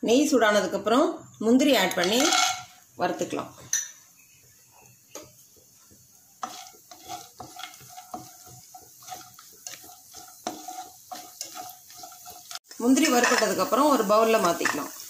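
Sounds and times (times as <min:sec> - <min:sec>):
nuts sizzling in oil: 0:00.1 - 0:15.0
spatula scraping pan: 0:01.9 - 0:02.8, 0:04.8 - 0:13.8.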